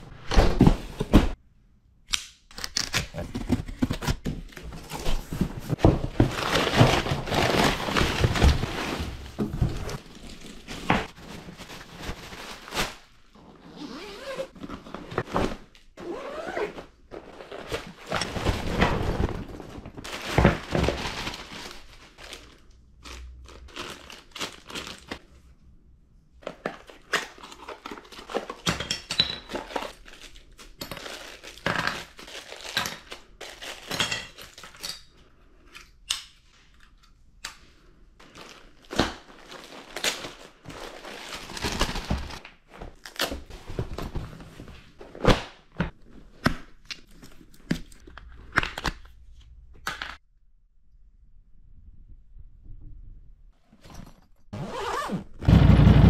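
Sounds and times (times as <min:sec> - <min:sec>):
plastic bags crinkling: 0:05.4 - 0:13.3, 0:17.2 - 0:25.2, 0:29.5 - 0:34.8, 0:38.2 - 0:43.0.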